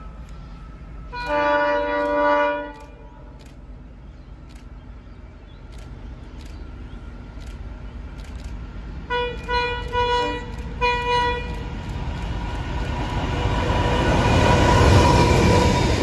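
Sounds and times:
locomotive engine: 0.0 - 16.0
train rolling noise: 0.0 - 16.0
locomotive horn blasts: 1.1 - 3.0, 9.1 - 11.7.

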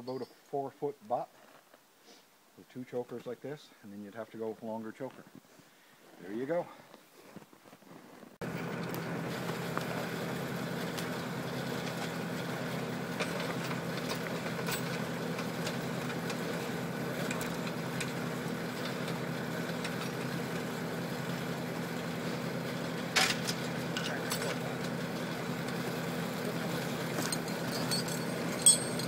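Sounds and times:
tractor engine idling: 8.4 - 29.0.

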